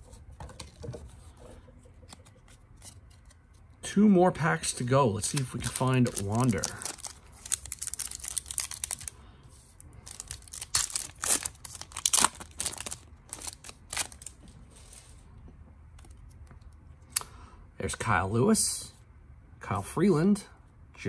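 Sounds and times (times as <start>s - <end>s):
foil wrapper tearing and crinkling: 5.2s - 9.2s, 10.0s - 14.3s.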